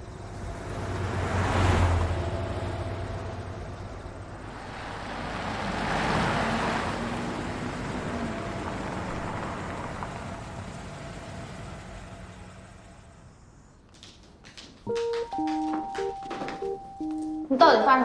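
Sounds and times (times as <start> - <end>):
minivan driving past: 0.0 - 13.7.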